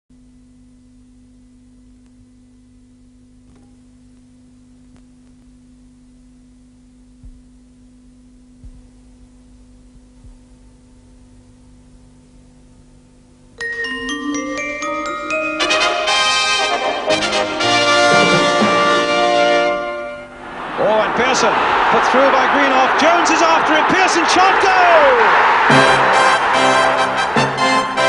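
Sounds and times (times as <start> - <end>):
faint mains hum: 0.1 - 18.2
steady low pure tone: 0.2 - 21.0
soft low thumps: 7.1 - 7.6, 8.4 - 9.2, 9.8 - 10.6.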